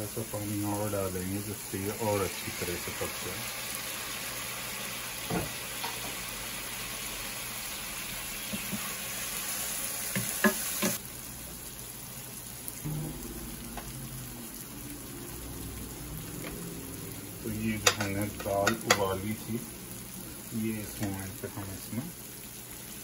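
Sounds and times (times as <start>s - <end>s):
masala sizzling in a pan: 0.0s - 23.0s
wooden spatula knocking on pan: 17.8s - 19.0s.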